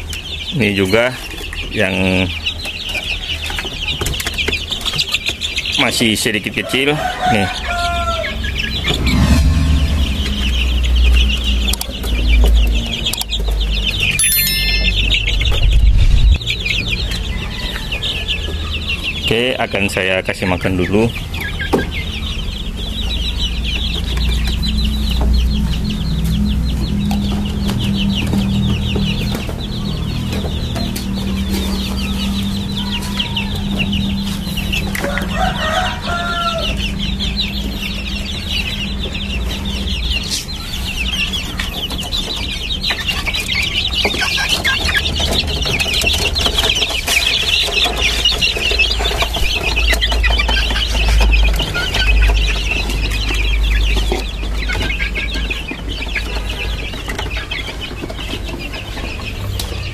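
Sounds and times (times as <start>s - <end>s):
chicks peeping: 0.0s - 59.9s
steady low hum: 8.5s - 11.7s, 15.0s - 16.5s.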